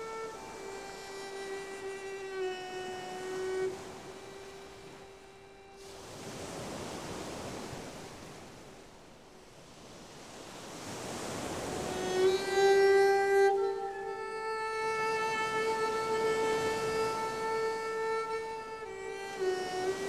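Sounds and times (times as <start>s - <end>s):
held bowed-string note: 0.0s - 6.8s, 11.3s - 20.0s
sea-like wash of noise: 0.0s - 20.0s.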